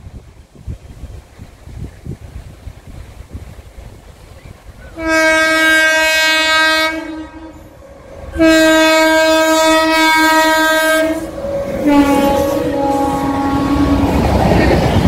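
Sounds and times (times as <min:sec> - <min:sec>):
train running noise: 0:00.0 - 0:15.0
locomotive horn blasts: 0:04.9 - 0:14.2.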